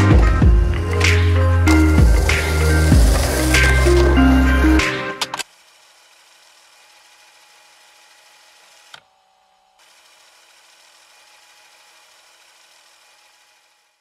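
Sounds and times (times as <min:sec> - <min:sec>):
music: 0:00.0 - 0:05.4.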